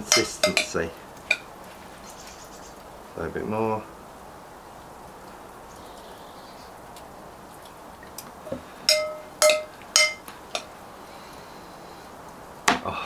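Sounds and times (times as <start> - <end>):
spoon clinking against glass: 0.0 - 1.4, 8.9 - 10.7
spoon stirring in glass bowl: 0.0 - 1.4, 8.9 - 10.7.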